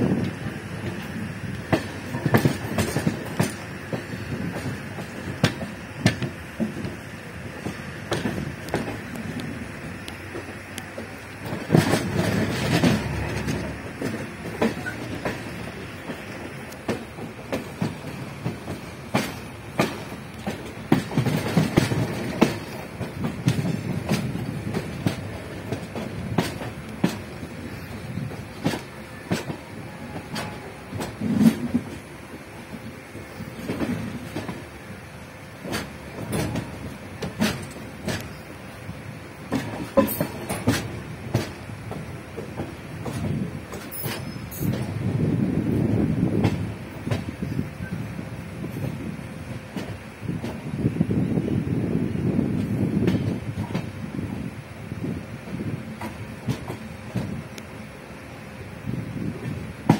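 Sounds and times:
train wheels clattering: 0:00.0 - 0:57.9, 0:58.9 - 0:59.9
steady rumble: 0:04.3 - 0:28.6.

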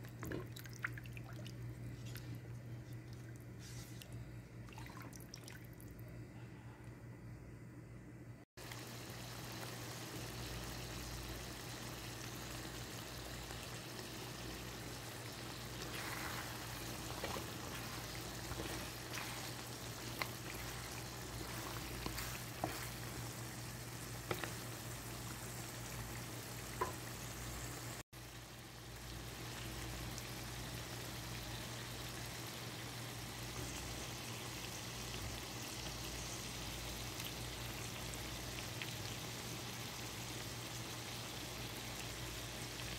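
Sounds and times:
low steady hum: 0:00.0 - 0:38.5
curry bubbling and sizzling: 0:08.6 - 0:42.9.

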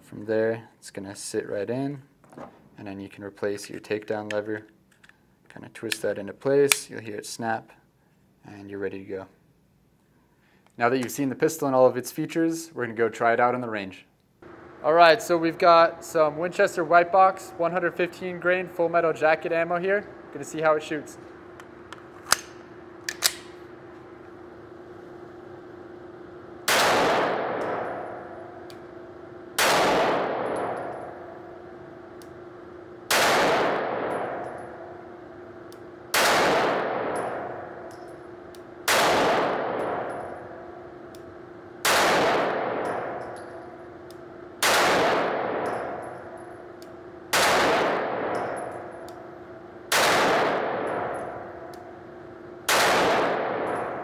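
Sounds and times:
pistol shots with echo: 0:26.6 - 0:28.7, 0:29.6 - 0:31.4, 0:33.1 - 0:35.0, 0:36.1 - 0:38.1, 0:38.8 - 0:40.7, 0:41.8 - 0:43.8, 0:44.6 - 0:46.6, 0:47.3 - 0:49.2, 0:49.9 - 0:51.9, 0:52.7 - 0:54.0.

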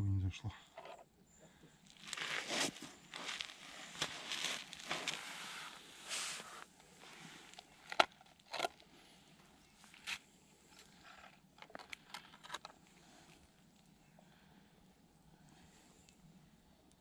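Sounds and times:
crunches on snowy ice: 0:01.8 - 0:13.6.

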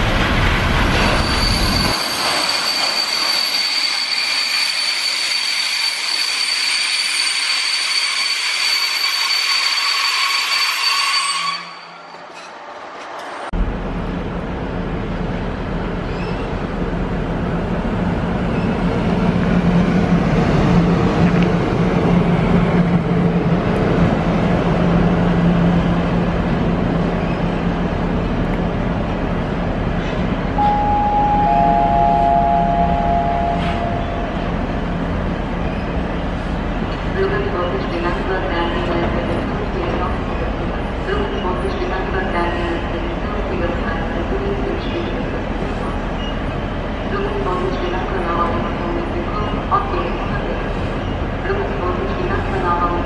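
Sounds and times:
high-pitched squeals: 0:01.0 - 0:12.6, 0:30.6 - 0:34.8.

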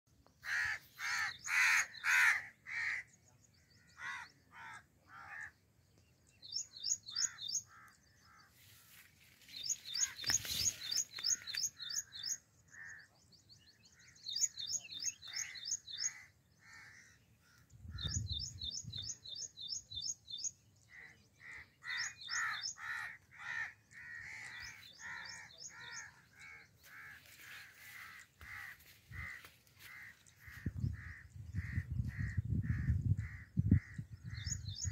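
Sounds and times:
crows cawing: 0:00.4 - 0:03.1, 0:03.8 - 0:05.6, 0:07.1 - 0:08.6, 0:15.3 - 0:17.6, 0:21.0 - 0:34.0.

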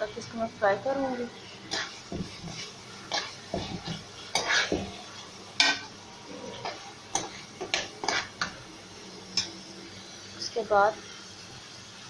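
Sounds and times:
masala frying in a pot: 0:00.0 - 0:12.0
metal spoon scraping a pot: 0:01.7 - 0:04.9, 0:05.6 - 0:08.5.

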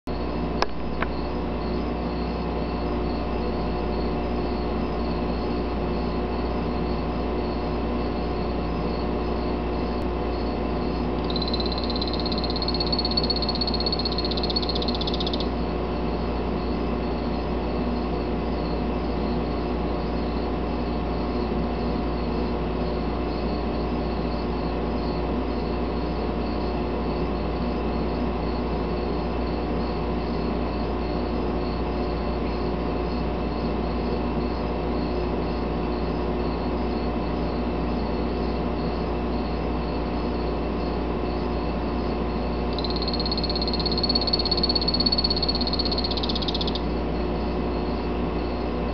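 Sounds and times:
steady low hum: 0:00.1 - 0:19.5
frog trill: 0:11.2 - 0:15.5, 0:42.7 - 0:46.9.

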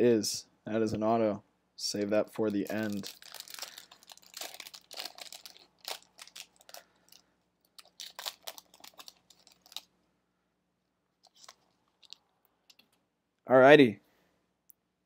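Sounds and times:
foil wrapper crinkling: 0:02.5 - 0:09.9, 0:11.2 - 0:12.8.

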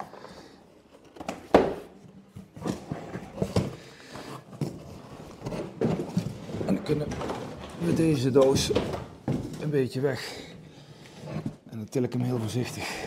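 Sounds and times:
cardboard rustling and scraping: 0:00.0 - 0:10.2.

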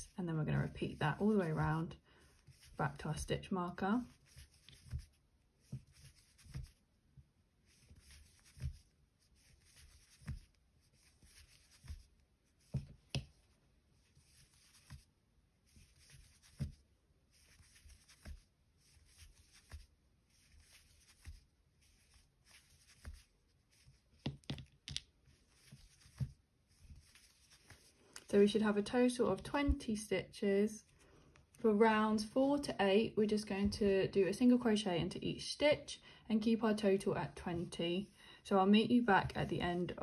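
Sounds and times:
crochet hook scratching yarn: 0:00.0 - 0:06.9, 0:07.6 - 0:24.4, 0:25.2 - 0:29.8.

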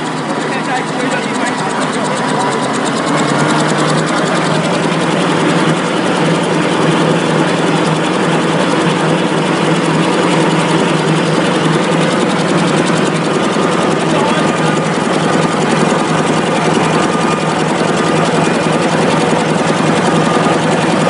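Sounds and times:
tissue machine clattering and humming: 0:00.0 - 0:21.0.

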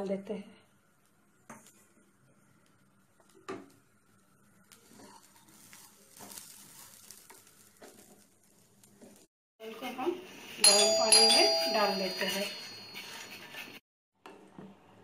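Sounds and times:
faint sizzle: 0:00.0 - 0:11.3
spatula scraping rice in pan: 0:04.7 - 0:09.3.

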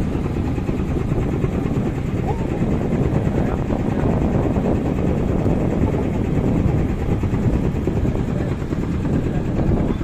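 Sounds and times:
boat engine rumbling: 0:00.0 - 0:10.0.

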